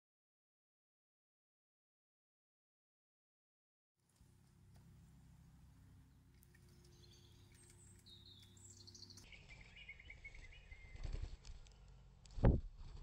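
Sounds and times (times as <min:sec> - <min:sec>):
low steady hum: 0:04.0 - 0:13.0
high thin bird chirps: 0:06.4 - 0:11.3.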